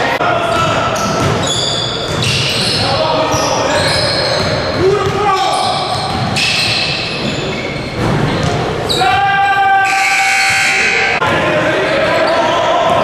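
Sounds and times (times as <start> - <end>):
echoing din of large hall: 0.0 - 13.0
basketball bouncing on gym floor: 0.5 - 2.8, 3.8 - 8.7.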